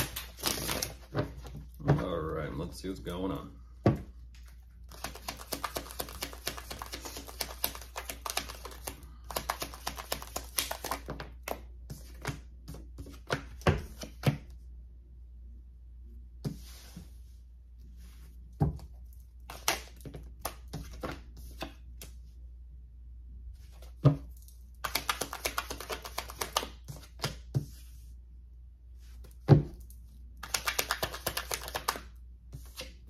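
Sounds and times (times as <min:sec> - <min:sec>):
cards shuffling: 0:00.0 - 0:02.0, 0:04.4 - 0:14.4, 0:19.0 - 0:22.2, 0:23.7 - 0:27.9, 0:29.2 - 0:33.0.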